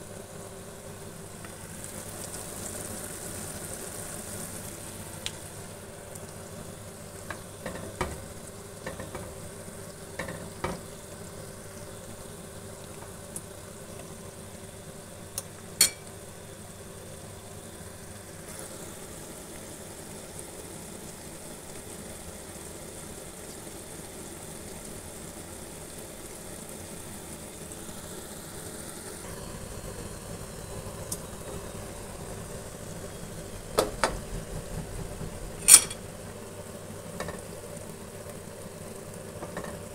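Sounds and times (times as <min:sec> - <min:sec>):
meatballs sizzling in oil: 0:00.0 - 0:39.9
metal utensil clinking on pan: 0:15.8 - 0:16.0, 0:35.6 - 0:36.0.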